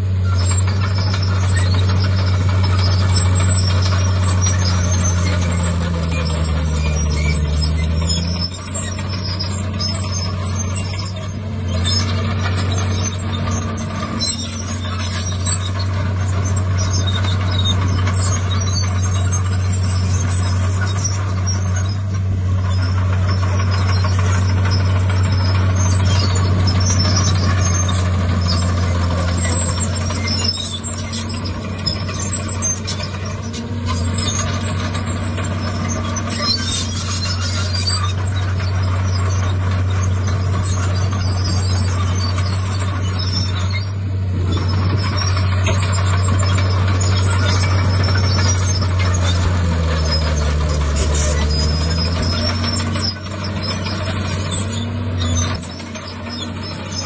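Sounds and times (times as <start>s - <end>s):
heavy diesel engines running: 0.0s - 57.0s.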